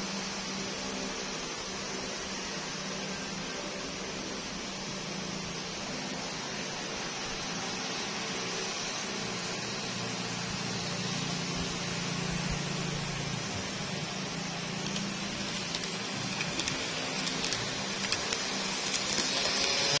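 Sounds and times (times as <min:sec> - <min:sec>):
hiss: 0:00.0 - 0:20.0
model train motor hum: 0:00.0 - 0:20.0
wheels clicking over rail joints: 0:14.6 - 0:20.0.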